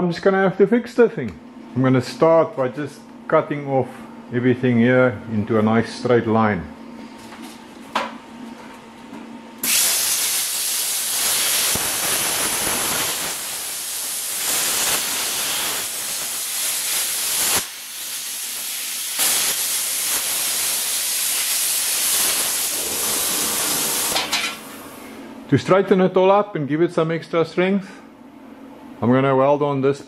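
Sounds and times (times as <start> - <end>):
plasma cutter hissing: 9.6 - 25.0.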